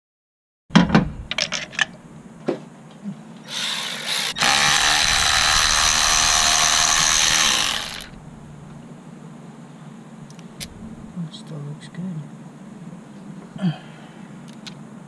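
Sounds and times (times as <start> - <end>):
electric ratchet motor running: 3.5 - 8.2.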